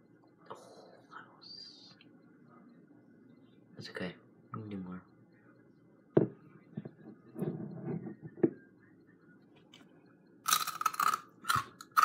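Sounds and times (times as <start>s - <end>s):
crisp chip crunching: 10.5s - 12.0s.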